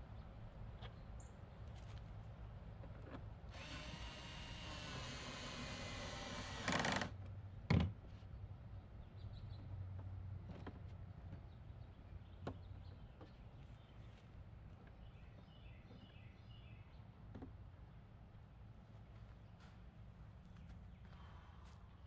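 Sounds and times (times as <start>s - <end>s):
cordless drill driving screw: 3.5s - 7.1s.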